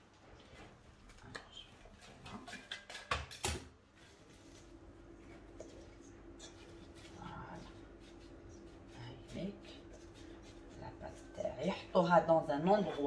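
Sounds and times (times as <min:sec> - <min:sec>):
hands kneading dough in metal bowl: 0:00.0 - 0:13.0
faint steady hum: 0:03.3 - 0:13.0.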